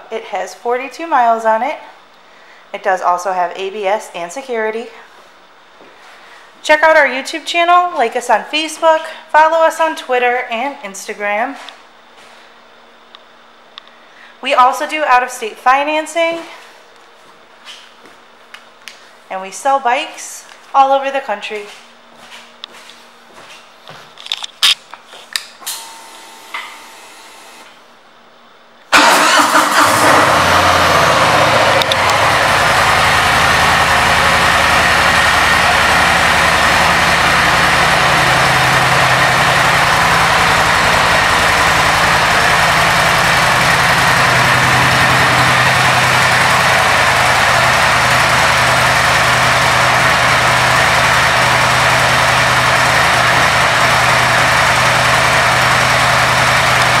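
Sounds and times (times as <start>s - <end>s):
motorcycle engine starting and idling: 28.9s - 57.0s.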